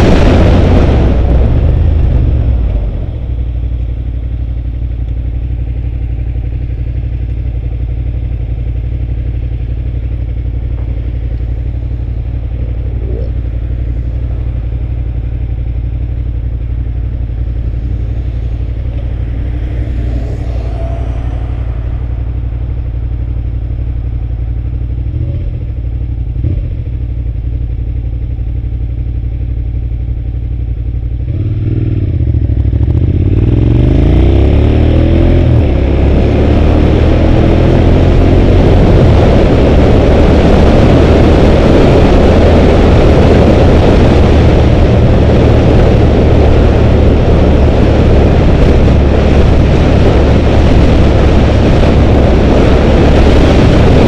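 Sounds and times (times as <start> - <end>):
wind rush: 0.0 - 3.8, 11.5 - 25.1, 33.1 - 54.0
motorcycle engine accelerating: 0.0 - 54.0.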